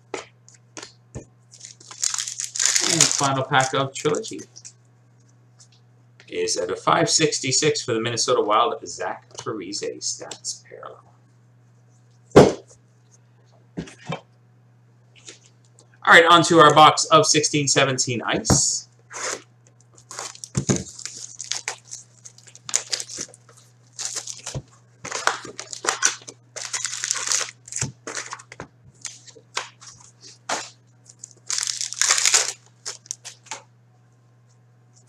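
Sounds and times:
foil packs crinkling and tearing: 0:01.5 - 0:03.8, 0:19.3 - 0:33.6.

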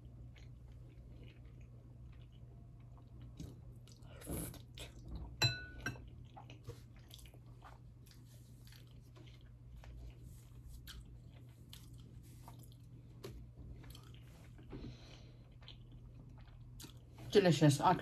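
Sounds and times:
wet chewing: 0:06.1 - 0:17.2.

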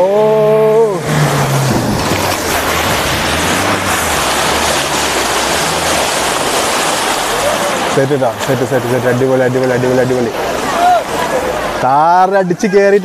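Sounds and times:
off-road vehicle engine under load: 0:00.0 - 0:13.0
steady rushing noise: 0:00.8 - 0:12.5
person shouting: 0:10.7 - 0:11.1.

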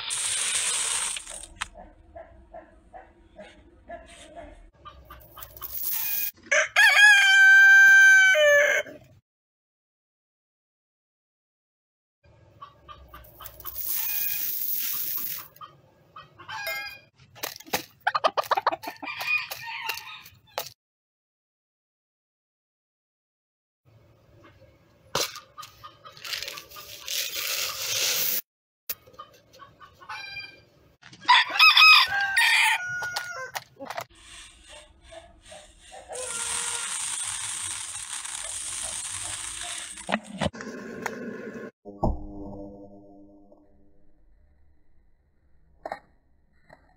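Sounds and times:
chicken clucking: 0:01.7 - 0:05.6, 0:18.0 - 0:19.2, 0:29.0 - 0:30.6
rooster crowing: 0:06.5 - 0:09.0, 0:31.3 - 0:33.6.

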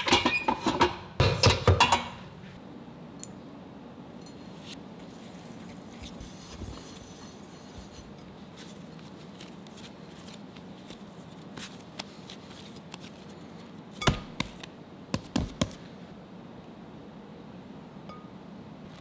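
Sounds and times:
hands rounding dough: 0:04.7 - 0:15.9.

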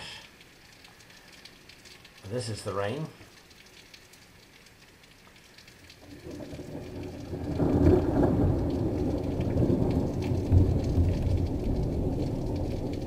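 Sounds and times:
steady rain: 0:00.0 - 0:13.0
thunder rolling: 0:06.0 - 0:13.0.

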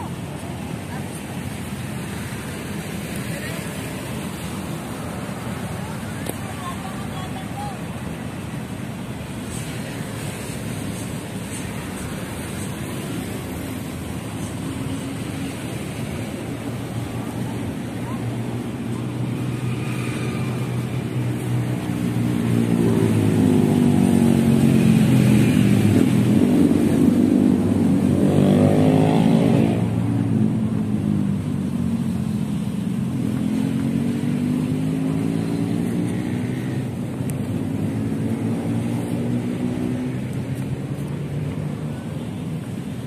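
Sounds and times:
engine passing by: 0:09.3 - 0:43.0.

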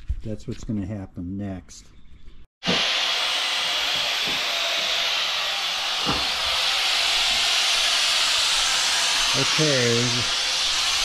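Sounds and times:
loud rushing hiss: 0:02.6 - 0:11.0.

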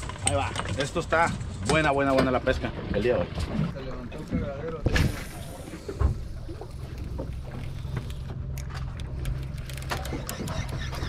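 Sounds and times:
outboard engine idling: 0:05.4 - 0:11.0.

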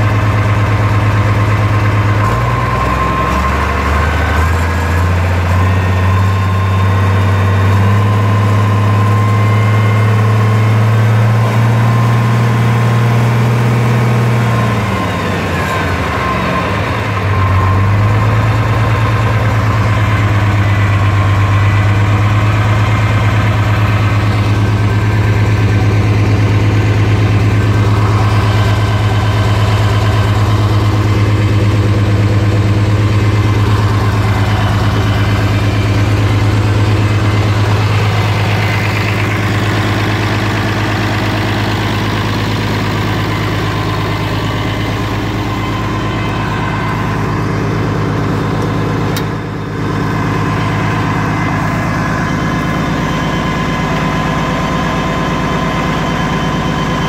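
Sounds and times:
tractor engine running: 0:00.0 - 0:57.0.

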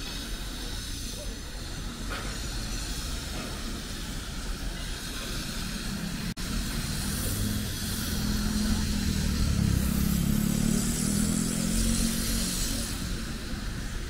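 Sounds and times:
street hiss: 0:00.0 - 0:14.0
vehicle engine passing by: 0:05.7 - 0:14.0.

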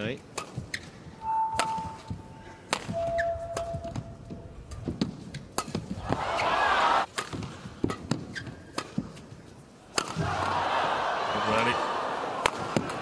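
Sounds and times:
rackets striking shuttlecock: 0:00.3 - 0:06.2, 0:09.9 - 0:10.3
shoes squeaking on court: 0:00.4 - 0:05.5, 0:07.8 - 0:09.4
crowd cheering: 0:06.0 - 0:07.1, 0:10.0 - 0:13.0.

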